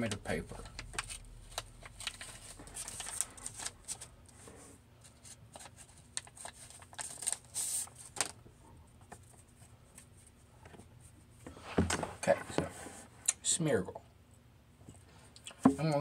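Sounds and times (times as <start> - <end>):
paper and card rustling: 0.5 - 8.4.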